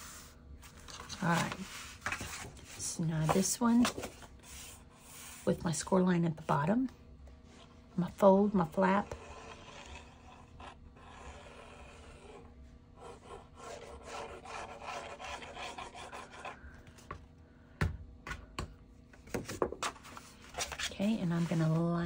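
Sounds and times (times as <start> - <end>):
paper handling: 0.6 - 4.3.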